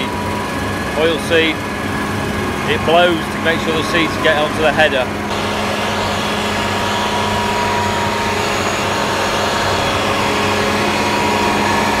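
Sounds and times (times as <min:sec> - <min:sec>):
combine harvester drone: 0:00.0 - 0:12.0
faint high whine: 0:05.3 - 0:12.0.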